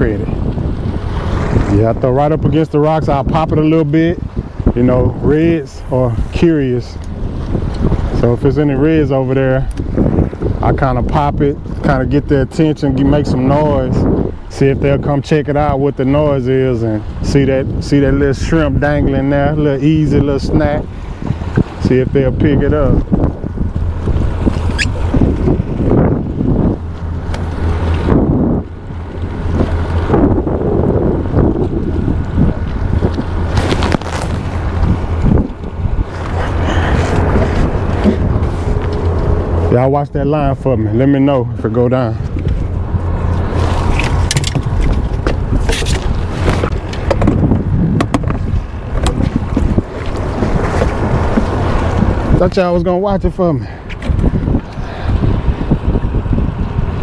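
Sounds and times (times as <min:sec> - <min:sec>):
waves lapping against boat hull: 0:00.0 - 0:57.0
wind buffeting microphone: 0:00.0 - 0:57.0
short rising squeak: 0:24.6 - 0:25.1.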